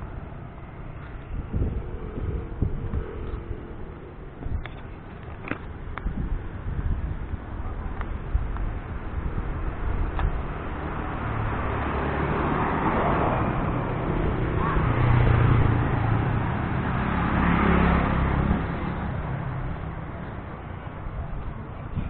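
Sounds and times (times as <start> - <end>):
small motorcycles passing: 7.8 - 22.0.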